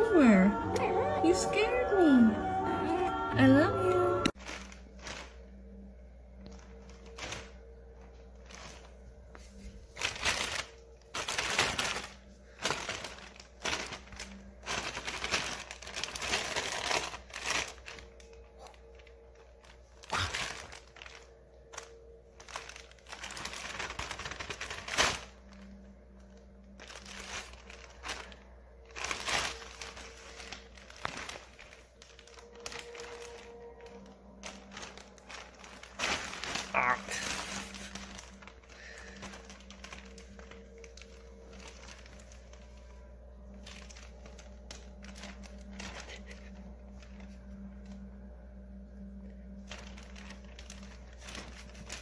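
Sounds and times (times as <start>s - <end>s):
plastic bag crinkling: 3.5s - 52.0s.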